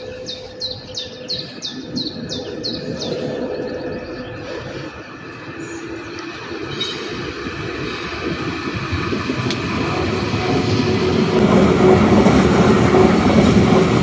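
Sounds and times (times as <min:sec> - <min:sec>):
songbird chirping: 0:00.0 - 0:07.0
electric train rumble: 0:00.0 - 0:14.0.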